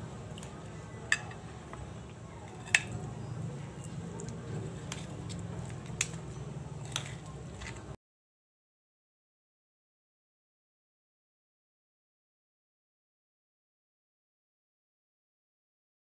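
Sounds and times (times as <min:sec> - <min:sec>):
low steady hum: 0:00.0 - 0:08.0
soft squishing of food: 0:00.0 - 0:08.0.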